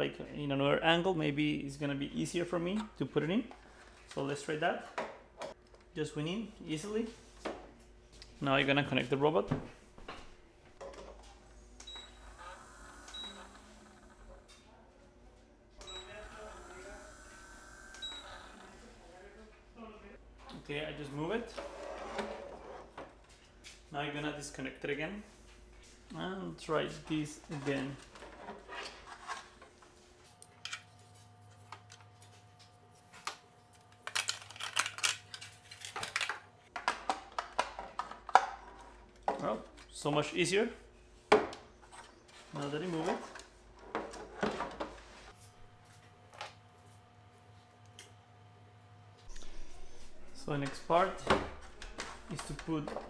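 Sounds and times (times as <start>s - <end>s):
faint steady hum: 5.1s - 21.7s
plastic parts clicking and knocking: 34.0s - 39.9s.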